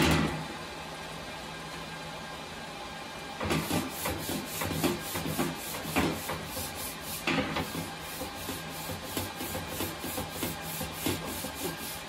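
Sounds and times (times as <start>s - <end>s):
paper towel rubbing on vented panel: 3.5s - 12.0s.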